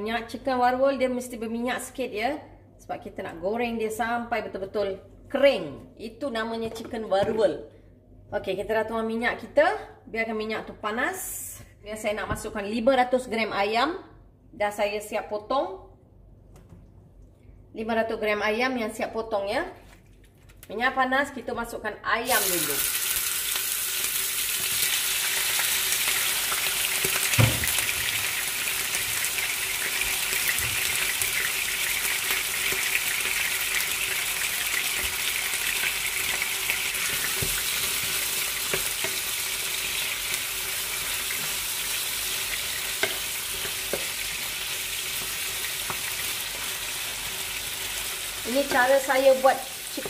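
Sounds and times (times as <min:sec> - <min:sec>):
chicken sizzling in frying pan: 0:22.3 - 0:50.0.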